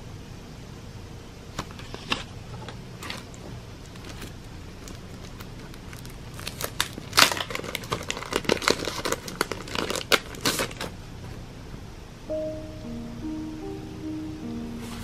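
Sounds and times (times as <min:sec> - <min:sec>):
cellophane sleeve crinkling: 0:03.0 - 0:11.0
soft piano notes: 0:12.2 - 0:15.0.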